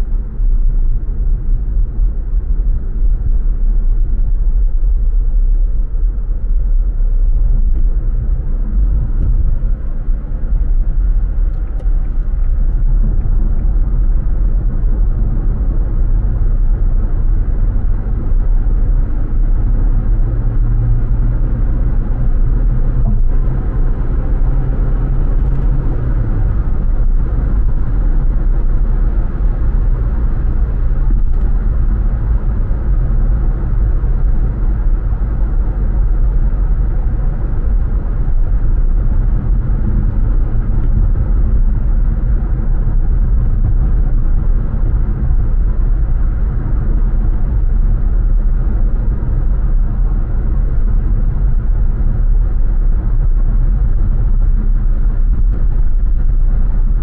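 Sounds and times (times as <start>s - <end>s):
car engine and road noise: 0.0s - 57.0s.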